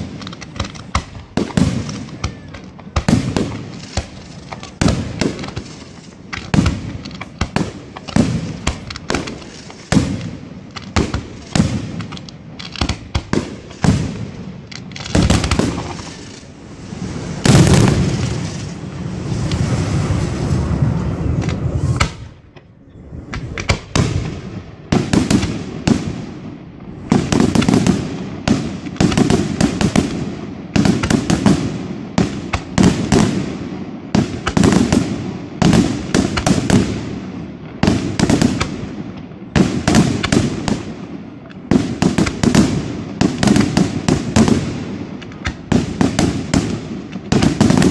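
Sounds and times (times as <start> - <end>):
firework shells bursting: 0.0 - 31.7.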